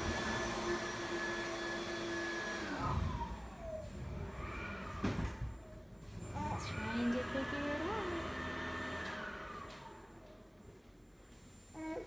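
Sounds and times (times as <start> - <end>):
electric motor whining: 6.1 - 10.0.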